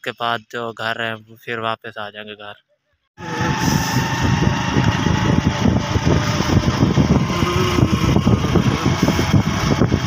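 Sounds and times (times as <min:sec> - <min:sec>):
motorcycle engine running: 0:03.2 - 0:10.0
wind noise on microphone: 0:03.2 - 0:10.0.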